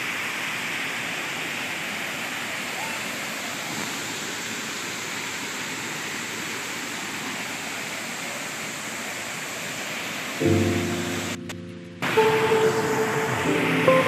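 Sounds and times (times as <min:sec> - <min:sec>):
waterfall splashing: 0:00.0 - 0:14.0
steady pitched tone: 0:10.4 - 0:14.0.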